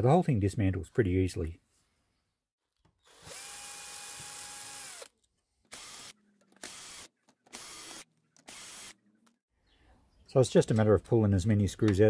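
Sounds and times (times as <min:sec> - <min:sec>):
drill-driver motor running: 0:03.0 - 0:05.1, 0:05.7 - 0:09.0.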